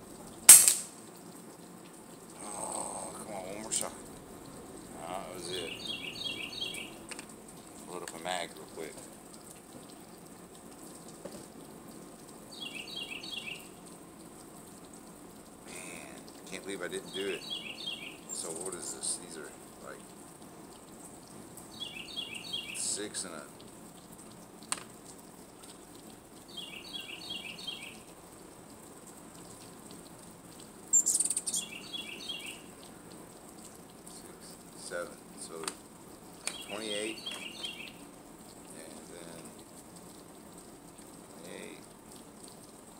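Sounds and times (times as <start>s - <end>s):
faint steady hiss: 0.0s - 42.9s
bird chirping: 5.2s - 7.0s, 12.5s - 13.7s, 17.0s - 18.9s, 21.7s - 22.9s, 26.5s - 28.0s, 30.9s - 32.8s, 36.4s - 38.0s.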